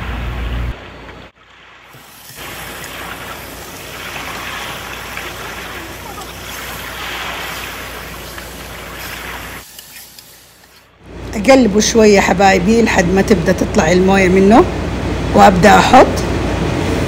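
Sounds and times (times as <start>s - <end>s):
meat sizzling in hot oil: 1.9s - 10.6s.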